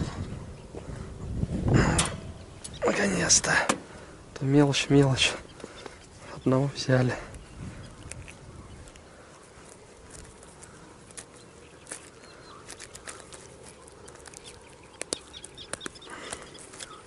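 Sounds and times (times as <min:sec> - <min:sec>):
gloved hands clicking and rustling: 0:06.9 - 0:17.0.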